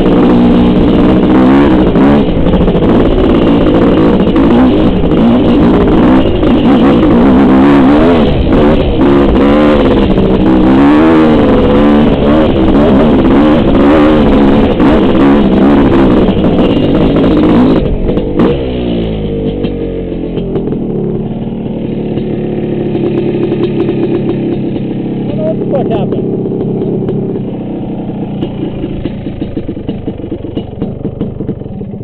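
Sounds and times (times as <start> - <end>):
dirt bike engine revving: 0.0 - 32.0.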